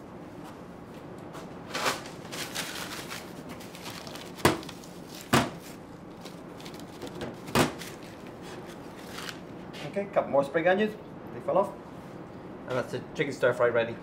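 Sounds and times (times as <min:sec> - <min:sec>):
utensils rustling and scraping: 0:01.4 - 0:09.8.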